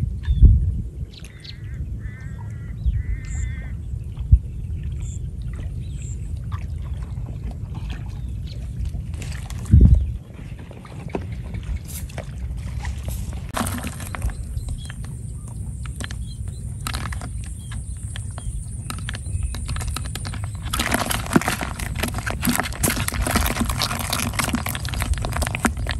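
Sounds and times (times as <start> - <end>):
low steady rumble: 0.0 - 25.9
fish flapping in plastic bucket: 12.9 - 25.9.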